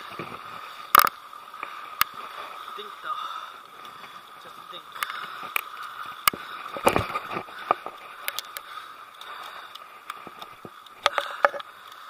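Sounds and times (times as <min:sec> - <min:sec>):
steady hiss: 0:00.0 - 0:12.0
fishing reel clicks and knocks: 0:07.6 - 0:12.0.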